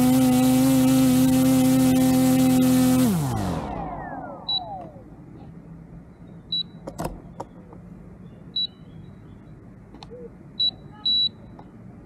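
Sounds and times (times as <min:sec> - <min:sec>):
short high electronic beeps: 0:04.4 - 0:04.8, 0:10.6 - 0:11.4.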